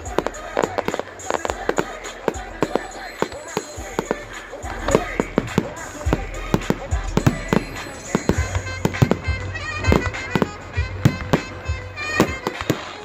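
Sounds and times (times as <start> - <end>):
fireworks bangs and crackles: 0.0 - 13.0
music playing: 0.0 - 13.0.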